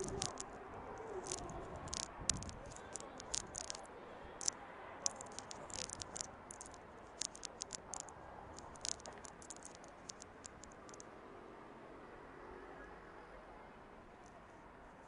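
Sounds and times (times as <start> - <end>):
sharp clicks and crackles: 0.0 - 11.1.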